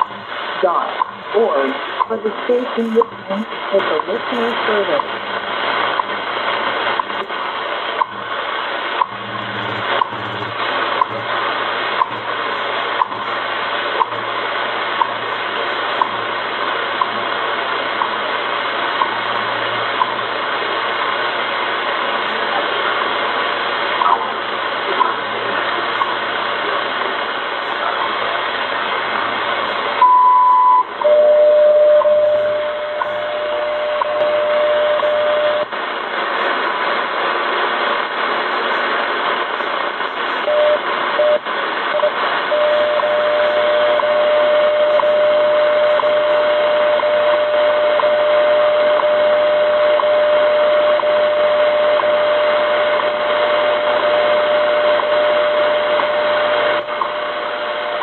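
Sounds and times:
shortwave static hiss: 0.0s - 58.0s
steady radio tone: 0.0s - 58.0s.

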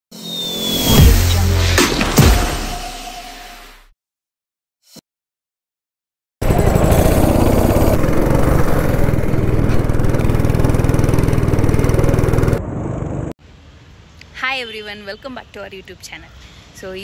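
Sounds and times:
go-kart engine running: 6.4s - 13.3s.

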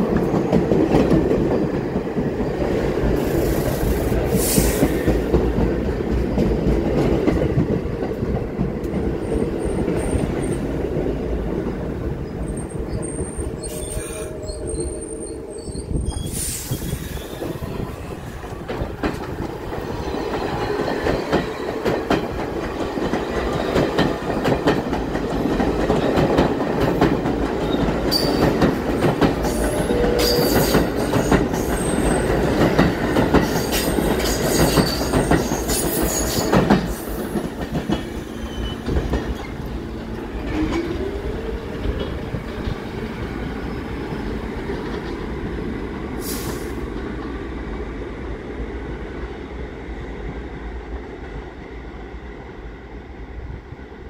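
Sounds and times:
subway train pulling out: 0.0s - 54.0s
train wheels squealing: 12.2s - 18.4s, 27.6s - 32.6s, 33.4s - 39.7s.

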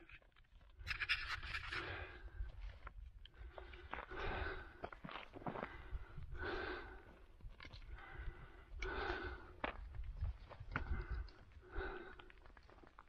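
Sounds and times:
footsteps on loose gravel: 0.4s - 13.0s
heavy breathing: 1.4s - 2.6s, 3.3s - 9.8s, 10.7s - 12.8s.

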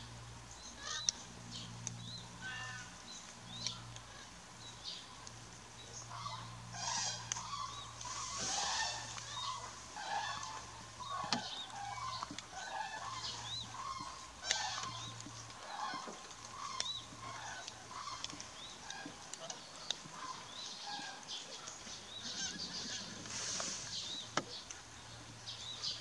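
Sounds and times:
cranes honking calls: 0.7s - 1.2s, 2.4s - 3.1s, 6.0s - 24.3s.

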